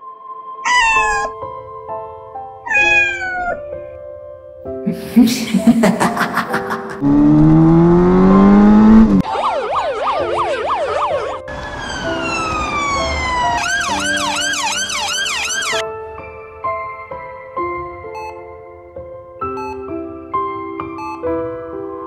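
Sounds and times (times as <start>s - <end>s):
soft background music: 0.0s - 7.0s, 9.8s - 22.0s
emergency siren: 7.0s - 15.8s.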